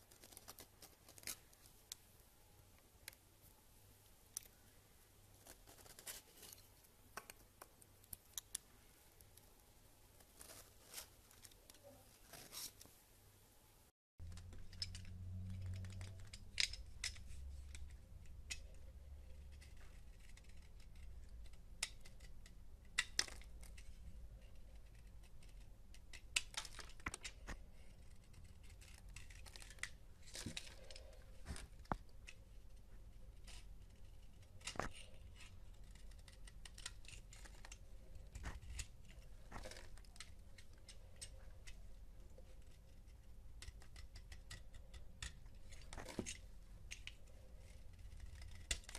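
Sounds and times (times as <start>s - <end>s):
knife scraping soap: 18.5s - 41.8s, 42.6s - 48.9s.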